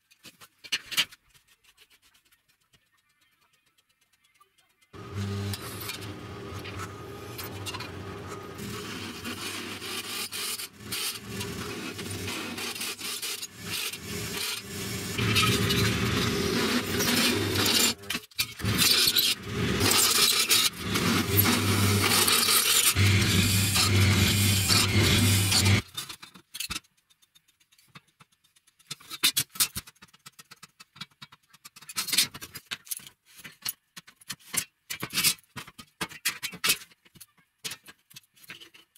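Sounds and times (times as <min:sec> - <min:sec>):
drill press motor hum: 0:05.0 - 0:09.5, 0:18.6 - 0:25.8
drill bit grinding through steel: 0:05.0 - 0:25.8.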